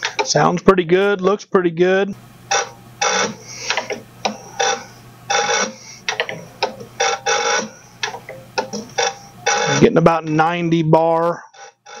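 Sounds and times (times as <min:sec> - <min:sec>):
steady low hum: 0:00.0 - 0:12.0
injector nozzle popping: 0:02.5 - 0:09.9.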